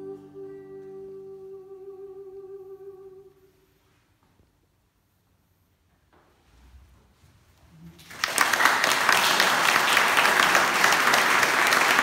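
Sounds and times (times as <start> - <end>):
small audience applauding: 7.9 - 12.0.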